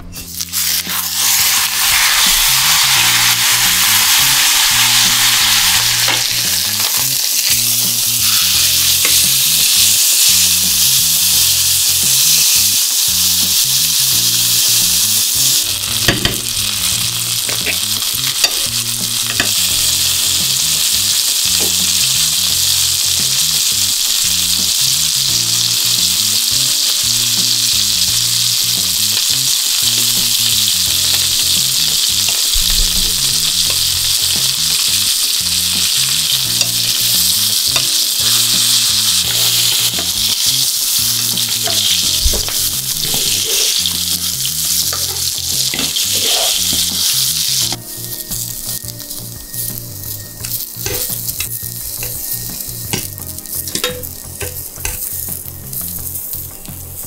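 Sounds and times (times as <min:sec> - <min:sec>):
steak sizzling in a frying pan: 0:00.3 - 0:57.0
metal tongs clicking on pan: 0:41.5 - 0:43.8, 0:44.8 - 0:47.0, 0:50.4 - 0:52.2, 0:52.9 - 0:55.2.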